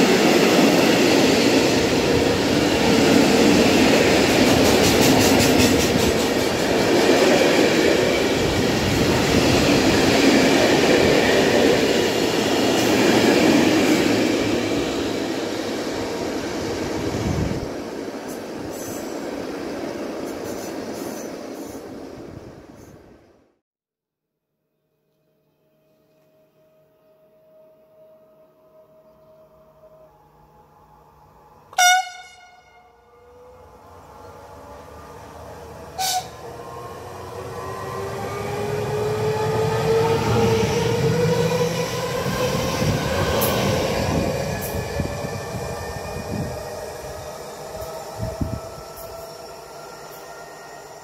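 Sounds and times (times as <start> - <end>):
wheels rumbling on rail: 0.0 - 23.1, 30.1 - 51.0
train horn blast: 31.7 - 33.4, 36.0 - 36.4.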